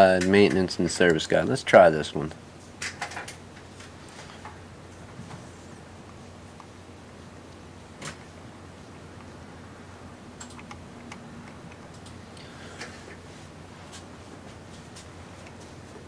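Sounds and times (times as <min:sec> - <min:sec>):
steady low hum: 0:00.0 - 0:16.0
computer clicks: 0:10.4 - 0:12.2.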